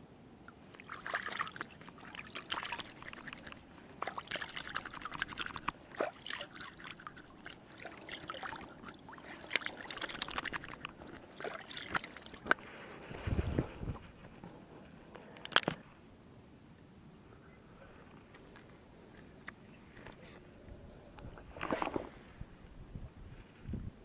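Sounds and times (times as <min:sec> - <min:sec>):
water splashing and trickling: 0:00.5 - 0:12.8.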